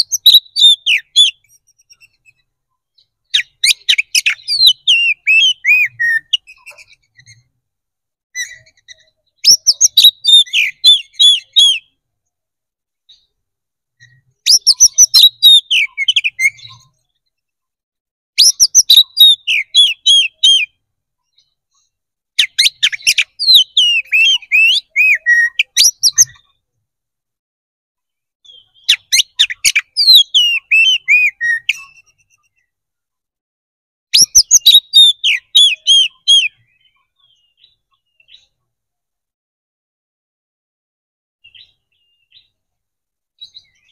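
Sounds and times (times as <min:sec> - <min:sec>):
bird singing whistles and chirps: 0:00.0 - 0:07.5, 0:08.4 - 0:12.0, 0:14.0 - 0:17.0, 0:18.4 - 0:21.8, 0:22.4 - 0:26.5, 0:28.4 - 0:32.7, 0:34.1 - 0:38.6, 0:41.5 - 0:42.6, 0:43.4 - 0:43.9.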